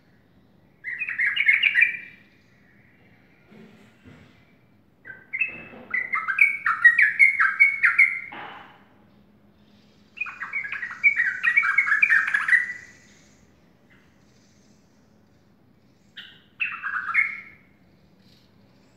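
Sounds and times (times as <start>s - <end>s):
bird singing chattering notes: 0.8s - 3.3s, 5.0s - 8.3s, 9.4s - 18.9s.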